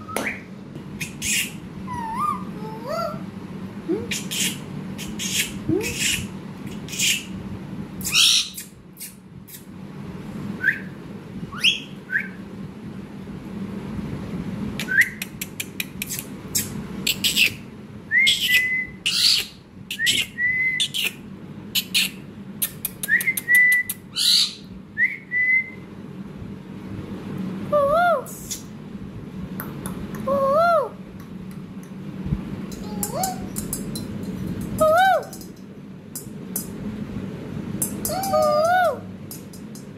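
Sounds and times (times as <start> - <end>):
parakeet chirps and whistles: 0.0 - 3.0, 4.1 - 7.3, 8.0 - 9.6, 10.6 - 12.4, 14.8 - 15.3, 16.1 - 21.2, 21.8 - 25.8.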